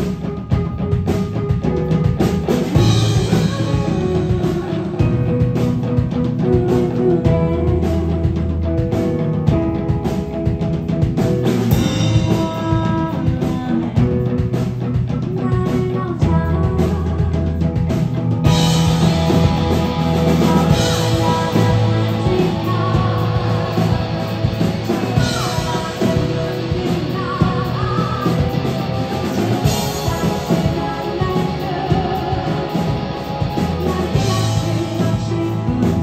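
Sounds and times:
drum kit: 0.0 - 36.0
electric guitar: 0.0 - 36.0
keyboard: 0.0 - 36.0
person singing: 2.6 - 9.2, 11.7 - 17.8, 18.5 - 36.0.

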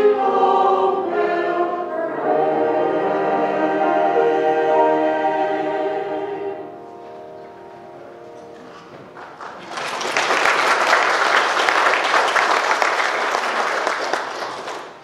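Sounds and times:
congregation applauding: 8.6 - 15.0.

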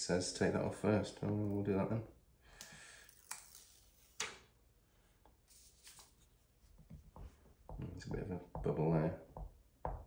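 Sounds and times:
protective film peeling: 3.1 - 4.5.

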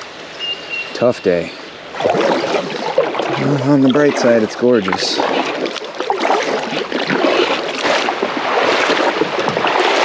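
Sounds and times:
creek water rushing and splashing: 0.0 - 10.0.

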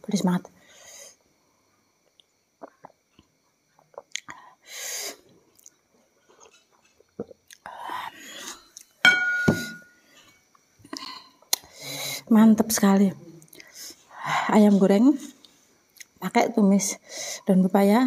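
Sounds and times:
person sipping and swallowing: 2.6 - 4.4
glass clinking on surface: 9.0 - 10.0.

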